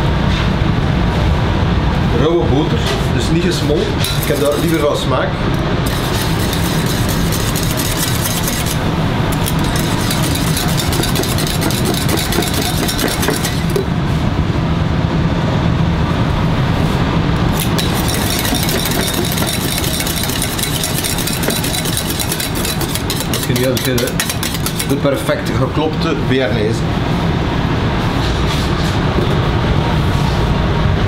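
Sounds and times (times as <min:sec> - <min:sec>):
whisk beating in a metal saucepan: 0:04.0 - 0:05.0, 0:05.8 - 0:13.9, 0:17.5 - 0:25.5.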